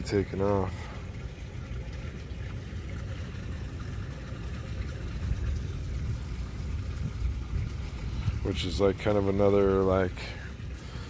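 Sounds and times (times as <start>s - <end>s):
wind buffeting microphone: 5.1s - 8.7s.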